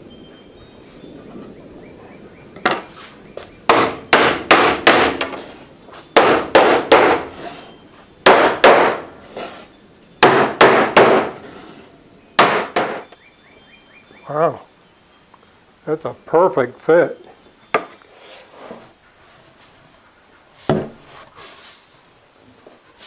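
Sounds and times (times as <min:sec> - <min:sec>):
hammer knocking wooden block: 0:03.7 - 0:05.4, 0:06.2 - 0:07.2, 0:08.3 - 0:09.0, 0:10.2 - 0:11.3, 0:12.4 - 0:13.1.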